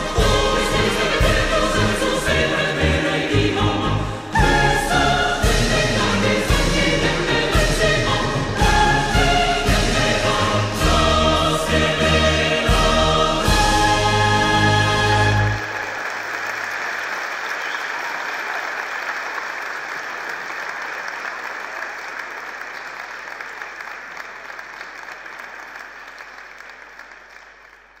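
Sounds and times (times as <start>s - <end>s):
audience applauding: 15.1s - 28.0s.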